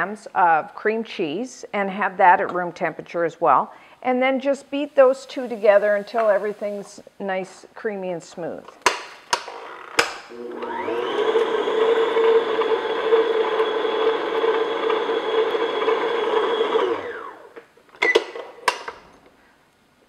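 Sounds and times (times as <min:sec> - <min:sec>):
electric stand mixer whining: 0:10.3 - 0:17.6.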